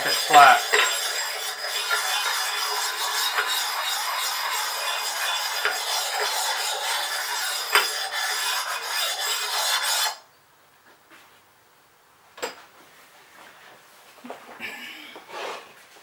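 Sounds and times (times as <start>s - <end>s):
stone rasping on metal: 0.0s - 10.2s.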